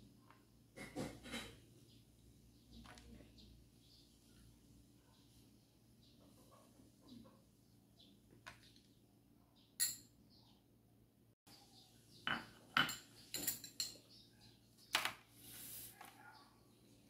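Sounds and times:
metal spoon clinking glass bowl: 9.8s - 10.1s, 12.3s - 14.1s.

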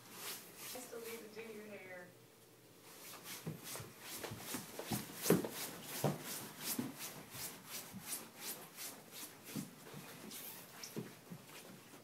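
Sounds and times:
soft footsteps: 2.8s - 12.0s.

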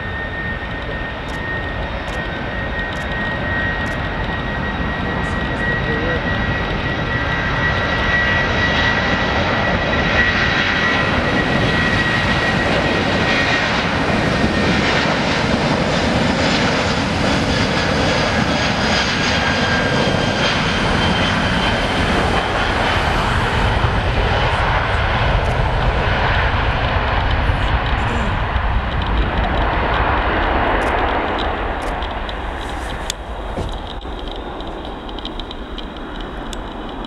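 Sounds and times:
jet engines roaring with high whine: 0.0s - 37.0s.

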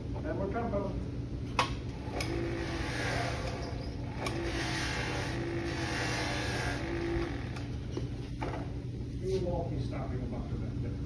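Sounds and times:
motor humming: 1.9s - 8.3s
buffing wheel hissing on metal: 2.3s - 7.7s.

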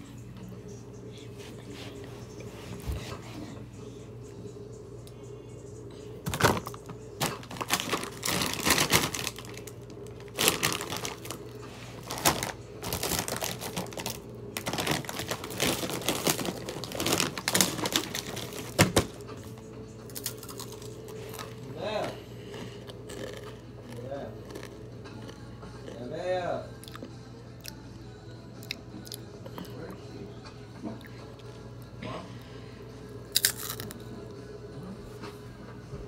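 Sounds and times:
plastic bag crinkling: 6.3s - 19.2s.

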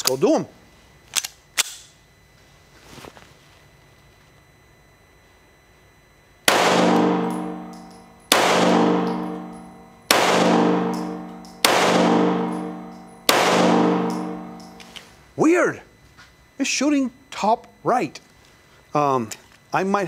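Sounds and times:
pistol shots: 6.5s - 14.8s.

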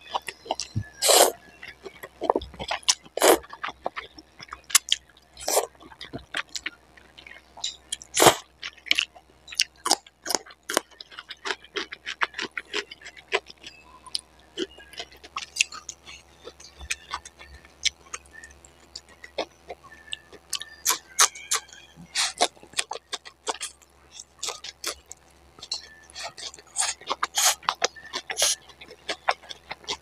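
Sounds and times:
wet chewing and mouth clicks: 0.1s - 30.0s
slurping noodles: 1.0s - 1.4s, 3.2s - 3.4s, 5.4s - 5.7s, 8.2s - 8.4s, 26.1s - 28.6s.

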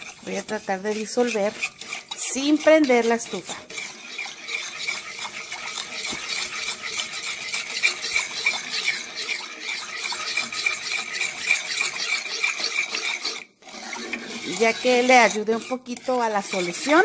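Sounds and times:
sugar grains scraping pot bottom: 0.0s - 17.0s.

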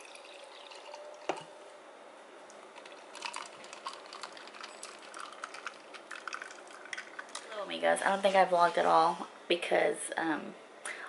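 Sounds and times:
liquid pouring over ice: 0.0s - 1.5s, 2.8s - 7.5s.

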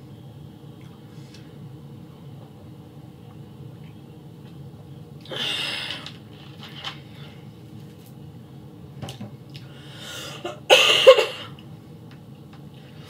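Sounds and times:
woman coughing: 10.4s - 11.5s.

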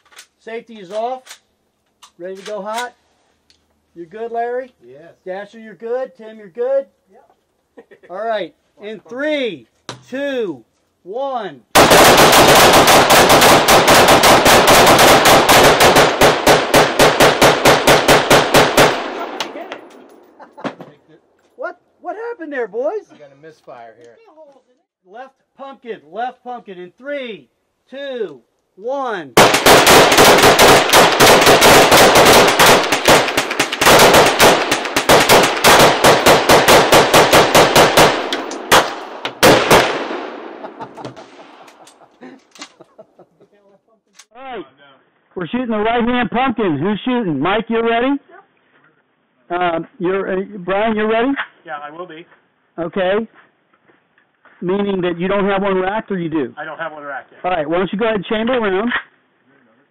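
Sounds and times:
rapid rifle gunfire: 11.8s - 19.7s, 29.4s - 41.7s
gunshot echoes: 11.8s - 20.4s, 29.4s - 41.8s.

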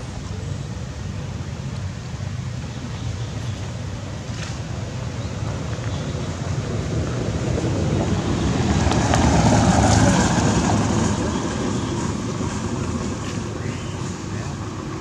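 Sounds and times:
outdoor rushing noise: 4.2s - 15.0s.

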